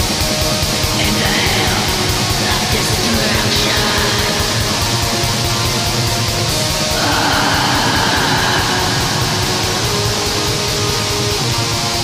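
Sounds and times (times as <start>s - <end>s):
distorted guitars: 0.0s - 12.0s.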